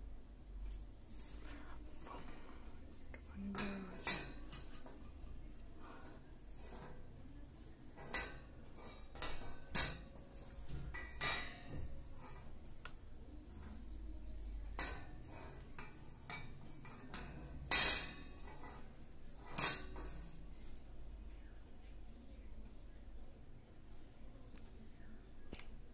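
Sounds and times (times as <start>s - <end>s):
metal wire rack clinking and knocking: 3.4s - 5.1s, 7.9s - 12.6s, 14.6s - 20.3s.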